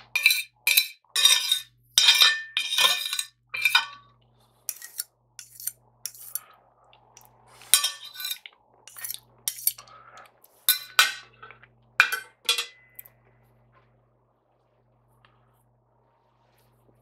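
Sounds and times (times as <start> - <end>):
cutlery scraping a ceramic plate: 0.0 - 4.1, 4.7 - 6.5, 7.6 - 9.9, 10.6 - 13.0
cutlery laid down on plate: 12.0 - 13.0.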